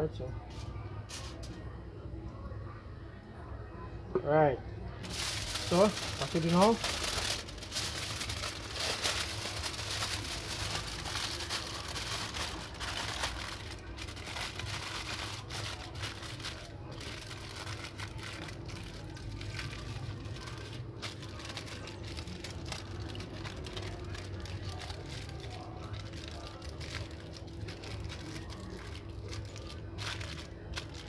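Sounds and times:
aluminium foil crinkling: 0.6 - 1.6, 5.0 - 31.0.

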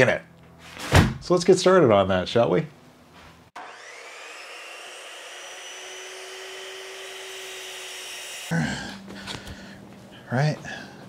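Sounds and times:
chop saw motor whining: 3.6 - 8.5
saw blade cutting aluminum: 3.6 - 8.5.

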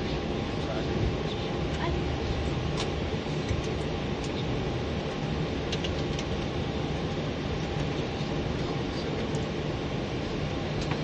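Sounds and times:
airliner cockpit rumble: 0.0 - 11.0.

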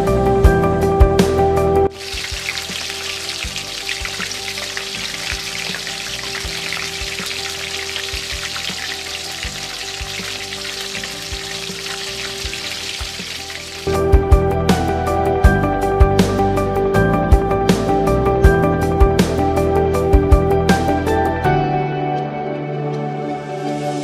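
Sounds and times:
oil sizzling and crackling: 1.9 - 14.2.

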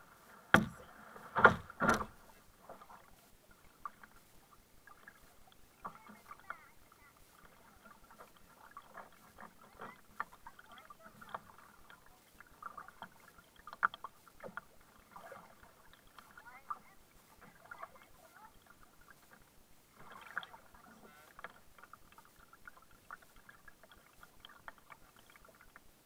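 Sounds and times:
kayak paddle splashing: 0.0 - 26.0
loud knocks: 0.5 - 0.8.

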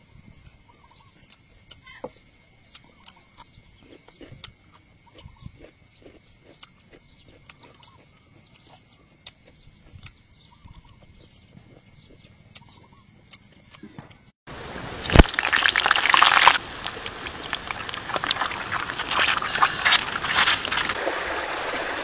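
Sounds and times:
egg sizzling in hot oil: 14.6 - 22.0.

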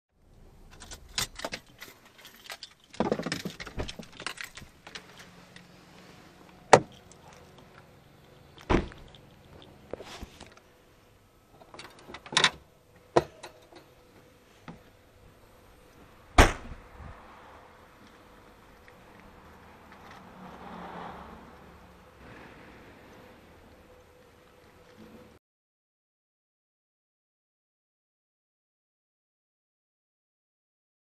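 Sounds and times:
car door shutting thud: 8.7 - 9.0, 16.4 - 16.8.

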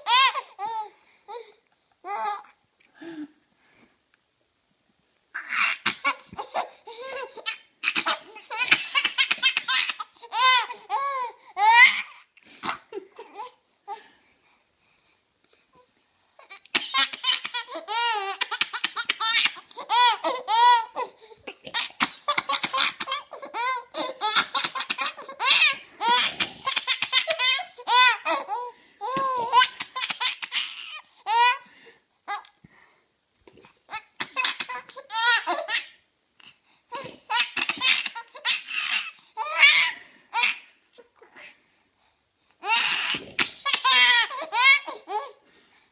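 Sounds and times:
baby laughing: 5.4 - 13.6, 16.4 - 31.6, 33.9 - 36.0, 36.9 - 41.2, 42.6 - 45.4.

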